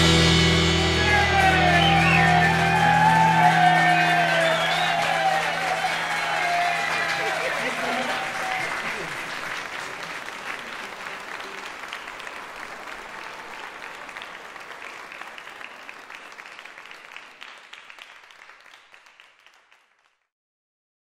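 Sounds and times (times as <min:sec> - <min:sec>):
audience applause: 0:00.1 - 0:20.3.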